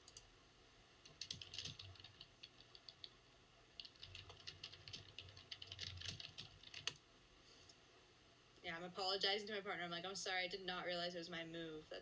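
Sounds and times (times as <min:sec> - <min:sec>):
typing on computer keyboard: 0:01.0 - 0:03.2, 0:03.8 - 0:07.0.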